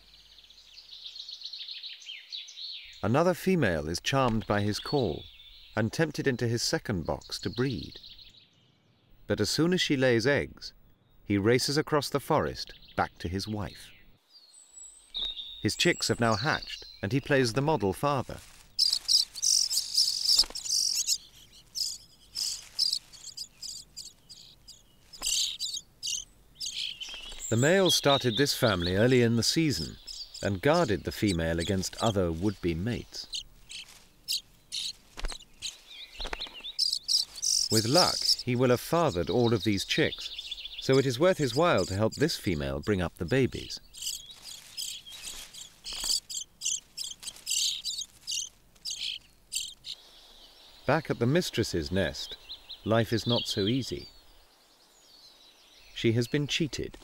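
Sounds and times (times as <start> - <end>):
nestlings begging chirps: 12.6 - 57.0.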